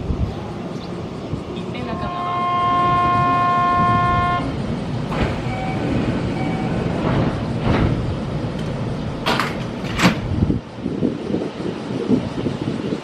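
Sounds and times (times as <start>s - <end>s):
standing train rumbling: 0.0s - 13.0s
train horn chord: 1.9s - 4.5s
short beeps: 5.4s - 6.8s.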